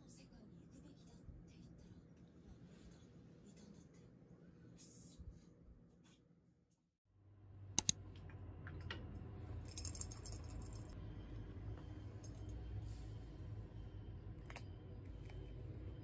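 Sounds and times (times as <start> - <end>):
sharp clicks: 7.8 - 8.0
treats rattling in a jar: 9.7 - 11.0.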